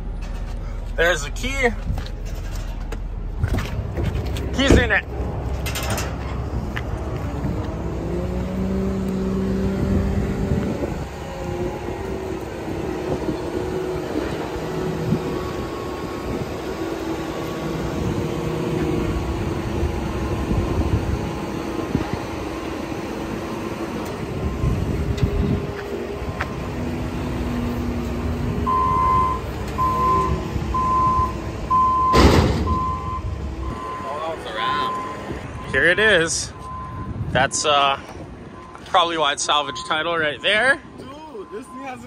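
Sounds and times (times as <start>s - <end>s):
vehicle engine revving: 3.3s - 32.5s.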